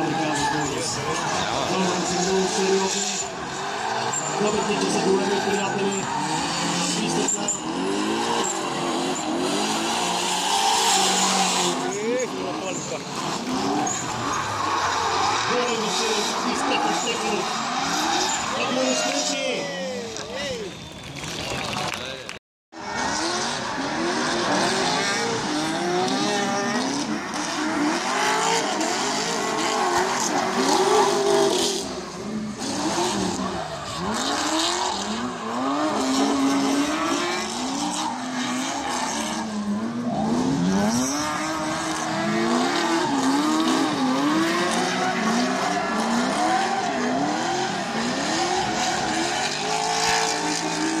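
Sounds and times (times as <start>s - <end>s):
tyres squealing: 0.0s - 21.1s
car engines revving hard: 0.0s - 21.2s, 22.8s - 51.0s.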